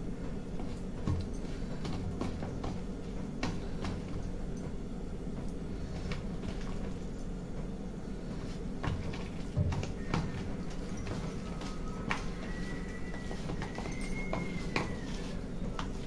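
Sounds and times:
steady low hum: 0.0 - 16.0
hand mixing batter squishing: 7.9 - 16.0.

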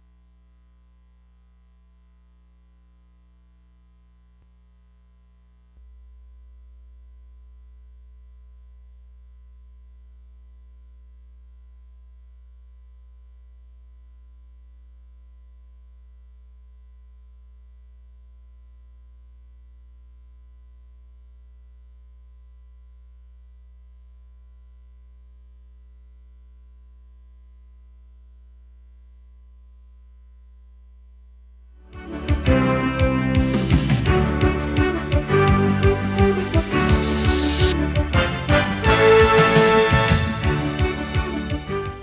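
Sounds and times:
low mains hum: 0.0 - 38.2
music: 31.8 - 42.0.

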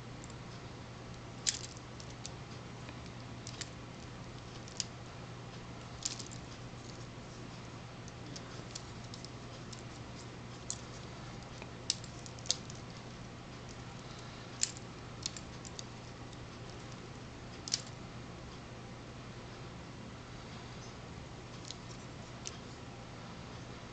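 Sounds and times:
steady low hum: 0.0 - 23.9
plastic parts clicking: 1.4 - 2.3, 3.1 - 3.8, 4.4 - 4.9, 6.0 - 7.0, 8.1 - 10.0, 10.6 - 11.0, 11.9 - 13.0, 14.6 - 15.9, 17.6 - 18.0.

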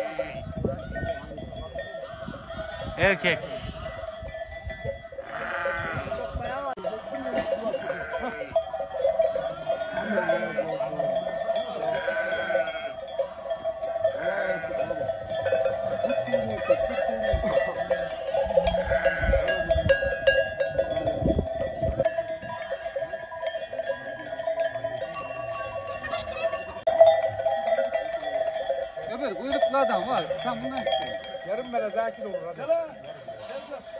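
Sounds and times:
sheep bleating: 0.0 - 1.3, 2.0 - 4.2, 5.2 - 6.7, 7.3 - 11.1, 11.8 - 13.1, 14.0 - 19.6
sheep bells clanking: 0.0 - 33.9.

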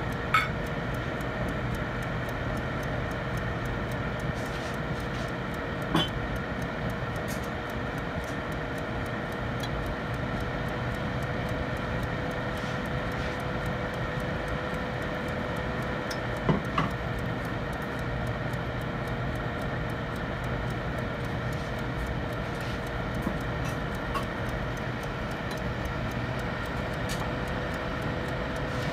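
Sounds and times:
oven fan hum: 0.0 - 28.9.

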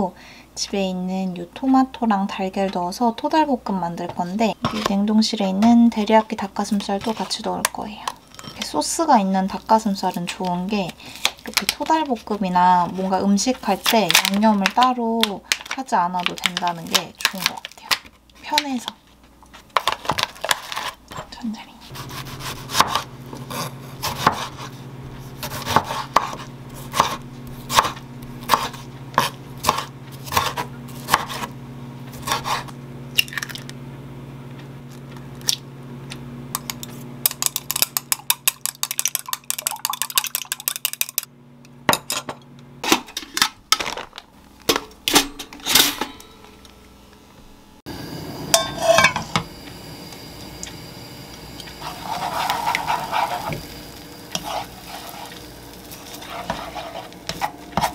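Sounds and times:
knife chopping on wooden board: 22.0 - 24.7, 25.4 - 31.5, 32.2 - 32.7
chopsticks beating eggs in glass bowl: 37.3 - 41.3, 51.6 - 53.6, 54.3 - 57.9
eggs sizzling in frying pan: 47.8 - 57.9.

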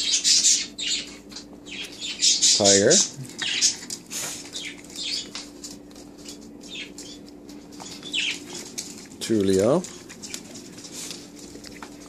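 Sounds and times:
steady low hum: 0.0 - 12.0
dogs scrabbling on hardwood floor: 3.2 - 12.0.

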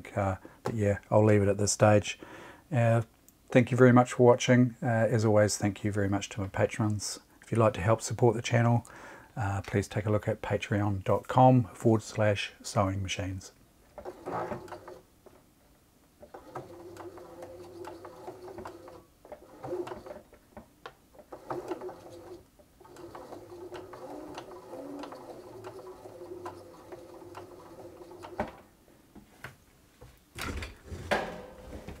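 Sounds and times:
sewing machine motor humming: 14.0 - 15.0, 16.2 - 20.3, 21.2 - 28.6
handling knocks: 30.4 - 32.0.

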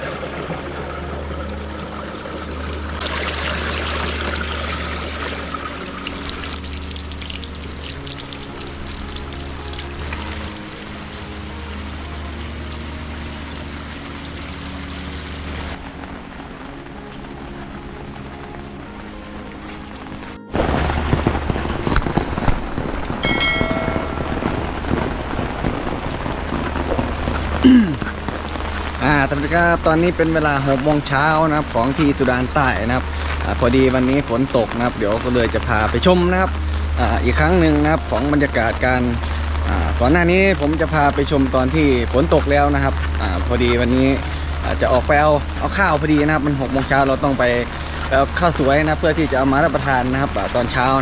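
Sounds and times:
water spattering from downpipe: 0.0 - 15.8, 20.5 - 51.0
rainwater gushing into ditch: 0.0 - 51.0
short chime: 23.2 - 25.0.

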